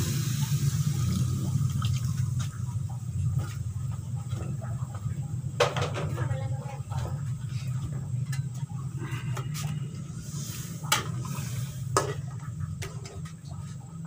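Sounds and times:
curry simmering: 0.0s - 5.6s
steady low hum: 0.0s - 14.0s.

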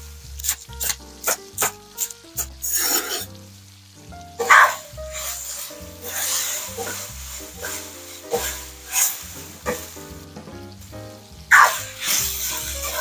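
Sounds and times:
background music: 0.0s - 13.0s
food sizzling in a wok: 0.0s - 13.0s
wooden spatula scraping a pan: 2.6s - 3.3s, 4.4s - 10.6s, 11.5s - 13.0s.

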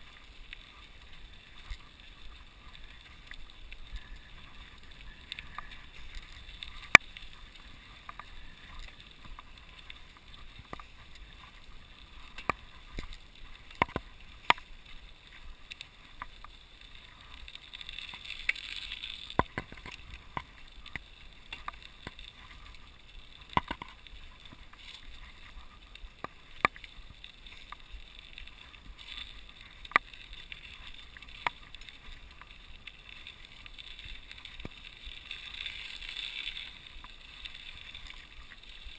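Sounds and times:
bike tyres hissing in snow: 0.0s - 19.3s, 20.0s - 38.9s
bike clicks and knocks over bumps: 10.2s - 15.1s, 19.2s - 25.4s.

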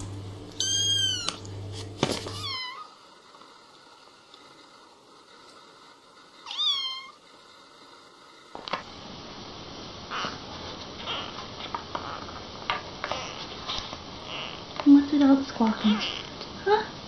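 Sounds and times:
kitten meowing: 0.6s - 1.5s, 2.3s - 2.9s.

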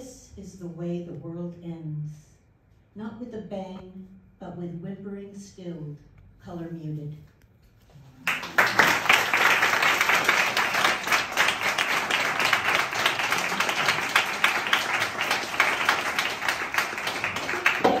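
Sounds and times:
audience applauding: 8.2s - 18.0s.

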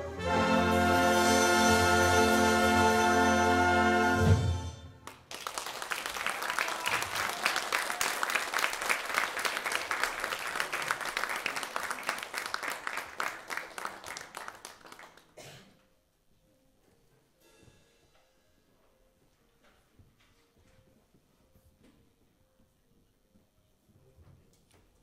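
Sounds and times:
orchestra brass chord: 0.0s - 5.0s
audience applauding: 5.0s - 15.4s.

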